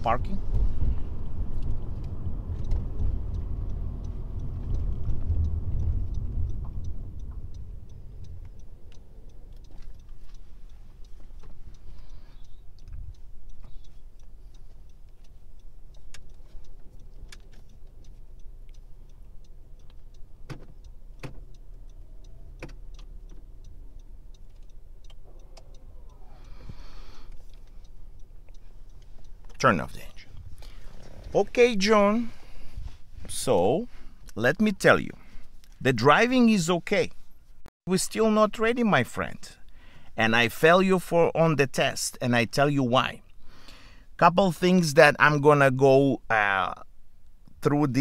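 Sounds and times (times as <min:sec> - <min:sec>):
car engine idling: 0:00.0 - 0:33.3
road rumble: 0:00.0 - 0:48.0
turn signal ticking: 0:00.0 - 0:48.0.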